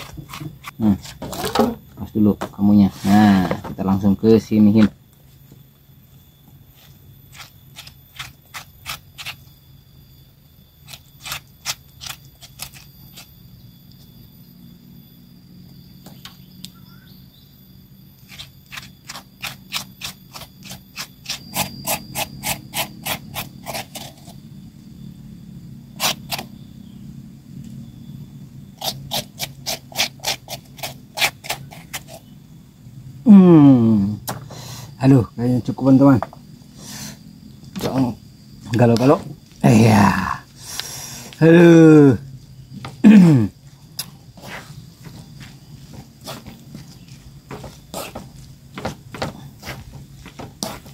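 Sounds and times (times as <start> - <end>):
papaya being scraped: 0.0 - 1.8, 6.8 - 9.5, 10.8 - 13.3, 18.2 - 24.4, 26.0 - 26.5, 28.8 - 32.3.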